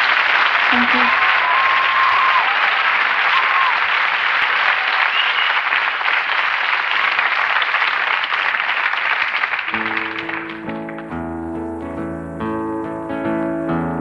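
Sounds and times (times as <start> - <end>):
audience applauding and cheering: 0.0 - 11.3
whoops and whistles: 5.0 - 5.7.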